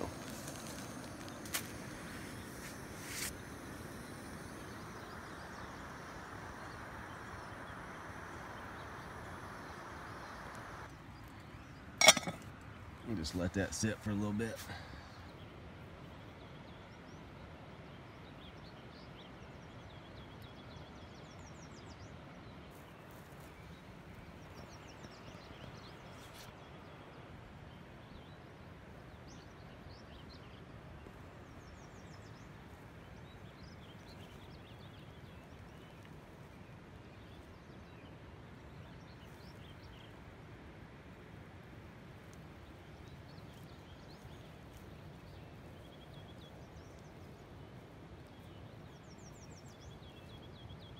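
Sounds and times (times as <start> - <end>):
small birds trilling: 0.0 - 15.5.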